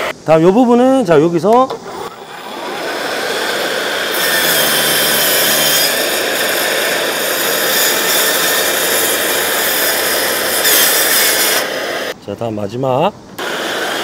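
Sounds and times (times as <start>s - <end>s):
plunge saw cutting wood: 1.8s - 12.2s.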